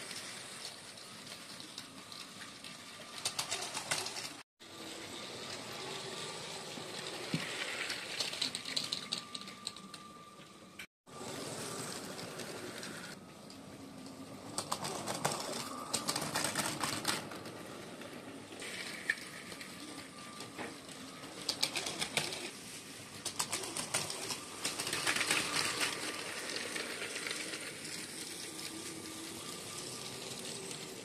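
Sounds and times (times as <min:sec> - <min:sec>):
toy train wheels clicking: 0:00.0 - 0:10.2, 0:14.0 - 0:31.0
faint train motor hum: 0:00.0 - 0:31.0.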